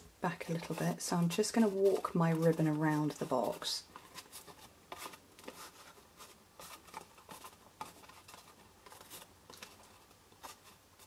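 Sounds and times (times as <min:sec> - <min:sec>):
rustling and scratching of paper box: 0:00.3 - 0:11.0.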